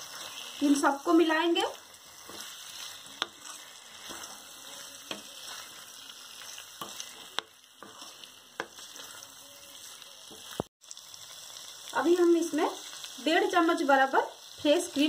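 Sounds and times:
spatula stirring food: 0.0 - 11.9
vegetables sizzling in pan: 0.0 - 15.0.

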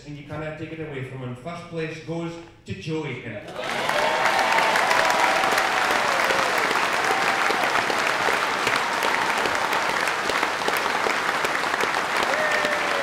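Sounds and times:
audience applauding: 3.5 - 13.0.

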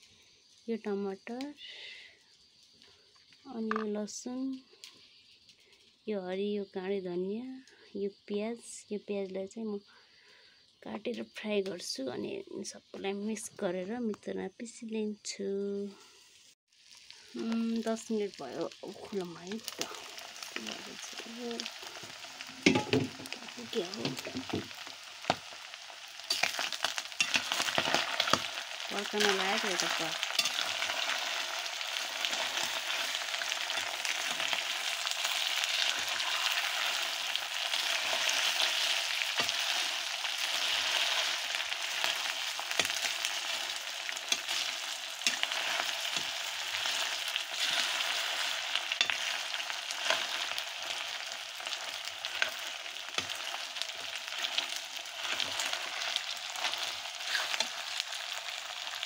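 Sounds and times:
meat sizzling in a pan: 0.0 - 1.5, 16.0 - 59.0
metal ladle scraping pan: 22.6 - 23.3.

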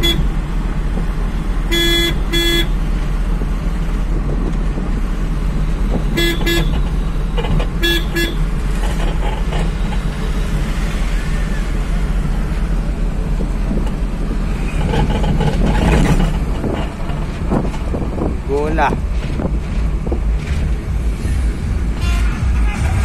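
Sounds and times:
vehicle horn beeping: 0.0 - 0.4, 1.6 - 2.8, 6.1 - 6.8, 7.7 - 8.5, 22.0 - 23.0
engine and road noise in cab: 0.0 - 23.0.

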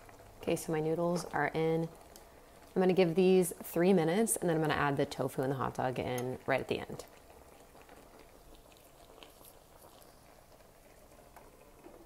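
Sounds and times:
noodles simmering in skillet: 0.0 - 12.0.

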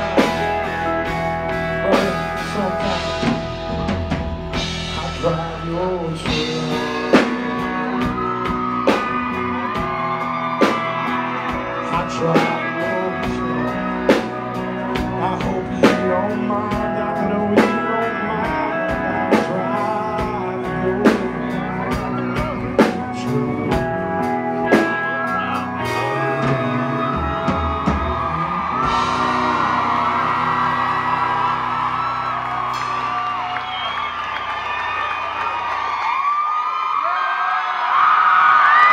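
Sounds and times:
live country band playing: 0.0 - 36.1
person singing: 1.5 - 4.0, 4.6 - 31.0.

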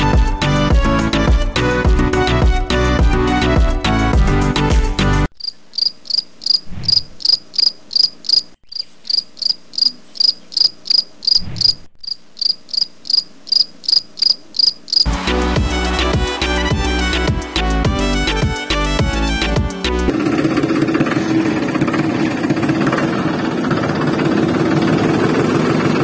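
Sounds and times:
insect chirping: 5.4 - 15.1.

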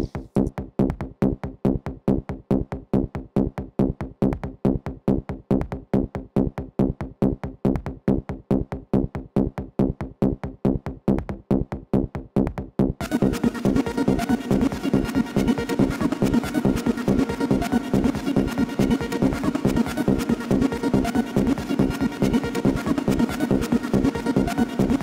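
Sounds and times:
electronic dance music: 13.0 - 25.0.

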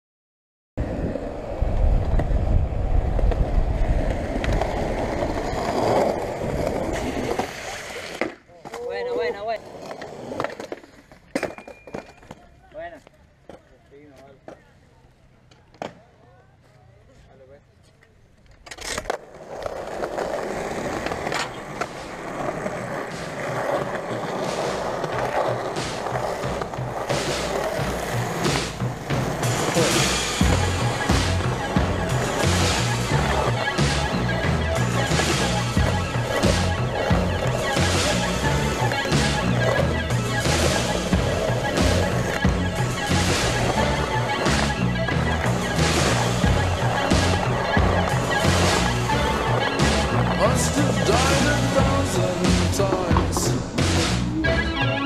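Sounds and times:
skateboard wheels rolling on concrete: 0.8 - 55.0
skateboard clacks: 18.0 - 54.3.

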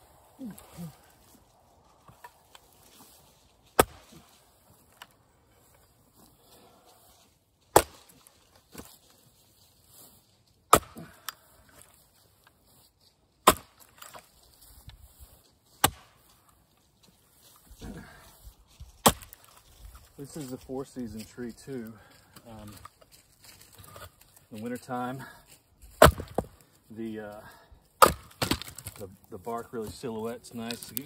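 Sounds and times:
axe chopping wood: 3.7 - 4.3, 7.7 - 8.9, 10.7 - 11.4, 13.4 - 14.3, 15.8 - 16.3, 18.9 - 19.5, 25.9 - 26.6, 28.0 - 29.0.

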